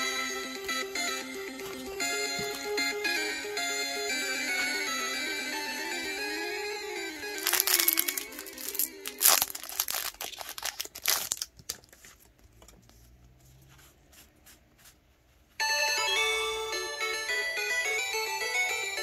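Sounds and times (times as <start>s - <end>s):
music: 0.0s - 10.1s, 15.6s - 19.0s
plastic wrapping crinkling and tearing: 7.4s - 12.3s.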